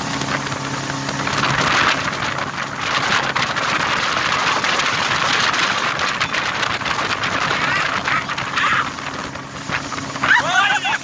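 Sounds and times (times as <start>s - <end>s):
motorboat engine drone: 0.0s - 11.0s
rush of churning wake: 0.0s - 11.0s.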